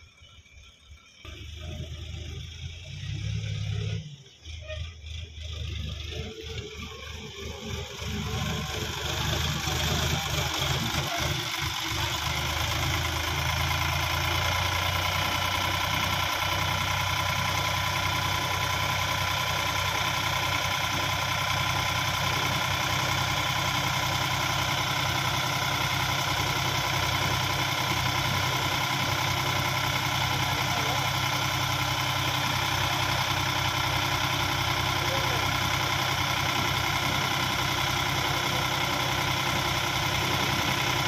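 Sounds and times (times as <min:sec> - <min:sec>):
tractor diesel engine running: 0:00.0 - 0:41.0.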